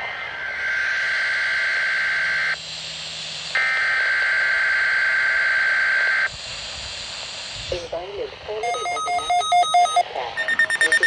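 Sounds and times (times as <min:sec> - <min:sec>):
buzzing two-tone data signal: 0:00.6 - 0:02.6, 0:03.6 - 0:06.3, 0:08.6 - 0:11.0.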